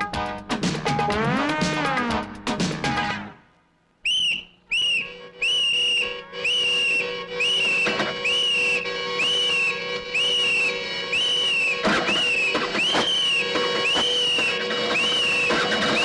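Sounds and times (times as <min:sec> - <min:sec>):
short high whistle notes: 0:04.0 - 0:16.0.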